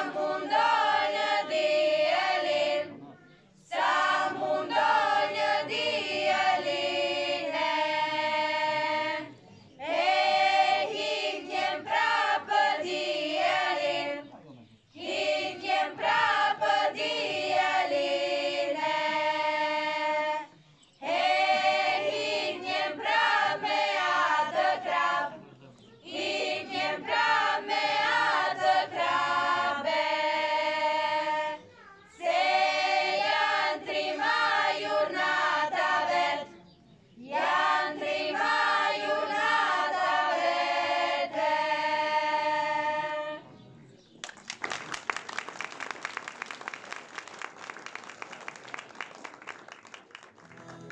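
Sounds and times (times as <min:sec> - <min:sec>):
young women singing together: 0:00.0 - 0:03.0, 0:03.6 - 0:14.2, 0:15.0 - 0:25.4, 0:26.0 - 0:31.6, 0:32.2 - 0:36.6, 0:37.2 - 0:43.5
audience applause: 0:44.2 - 0:50.9.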